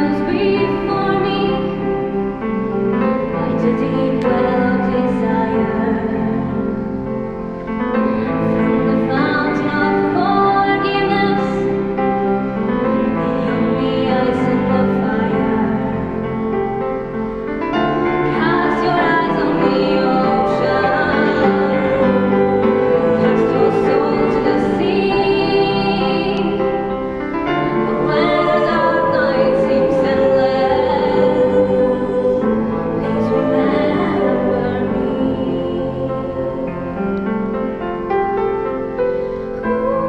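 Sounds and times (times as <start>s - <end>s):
woman singing into a microphone: 0.0s - 2.1s, 3.2s - 6.9s, 8.2s - 12.0s, 13.2s - 16.2s, 18.2s - 37.0s
choir holding sustained chords: 0.0s - 40.0s.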